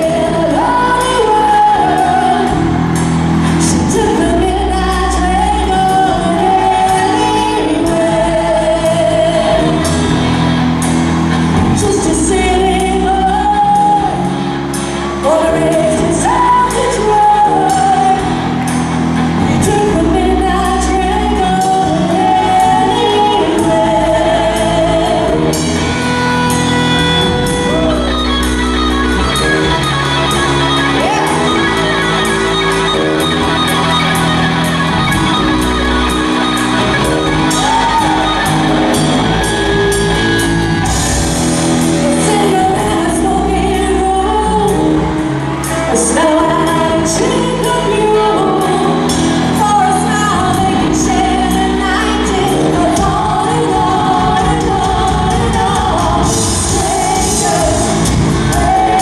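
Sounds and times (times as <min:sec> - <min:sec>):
female lead vocal: 0:00.0 - 0:10.4, 0:11.4 - 0:28.4, 0:41.8 - 0:59.0
bass guitar: 0:00.0 - 0:59.0
electric guitar: 0:00.0 - 0:59.0.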